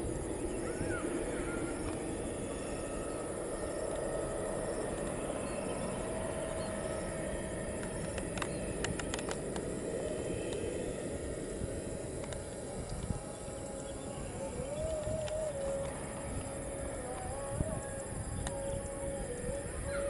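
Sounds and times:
distant jet engine rumble: 0:00.0 - 0:20.0
quick clicks: 0:07.8 - 0:09.7.

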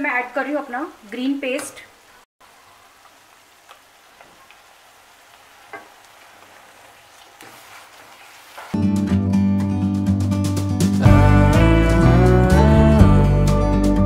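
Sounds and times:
onions sizzling in a pan: 0:00.0 - 0:08.8
spatula tapping a pan: 0:05.7 - 0:06.0.

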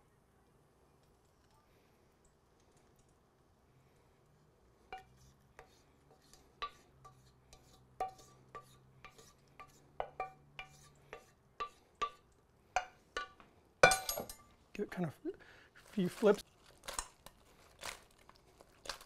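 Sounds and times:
wooden spoon scraping a saucepan: 0:04.9 - 0:12.2.

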